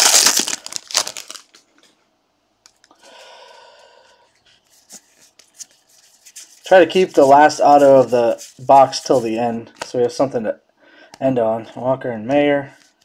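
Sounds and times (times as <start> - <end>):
foil wrapper crinkling: 0.0 - 1.7
cards rubbing together: 4.4 - 9.4.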